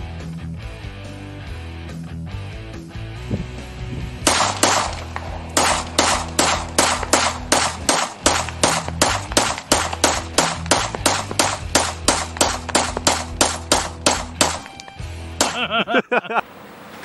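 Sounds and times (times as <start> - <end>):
background music: 0.0 - 16.0
pistol shots: 4.2 - 15.6.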